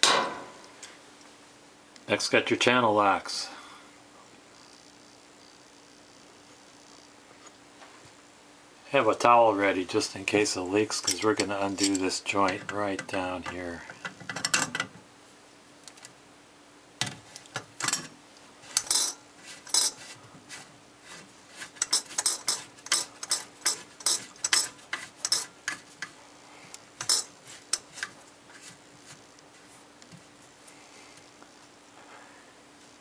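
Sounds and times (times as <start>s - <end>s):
pliers clicking and scraping on metal: 11.0s - 14.9s, 18.7s - 20.0s, 21.8s - 26.2s, 27.0s - 28.2s.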